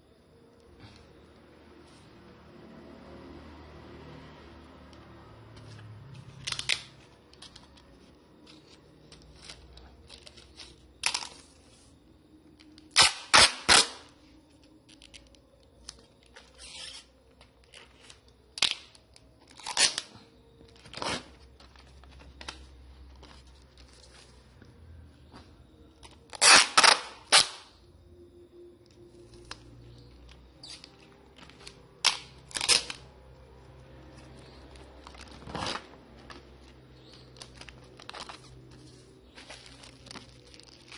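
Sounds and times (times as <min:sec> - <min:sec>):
plastic wrap crinkling: 0:34.4 - 0:40.9.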